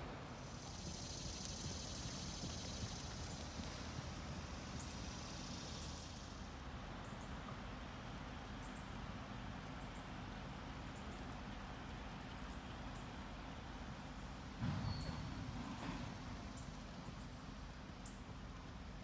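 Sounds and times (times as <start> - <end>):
outdoor background hiss: 0.0 - 19.0
horse hoofbeats on sand: 0.4 - 6.6.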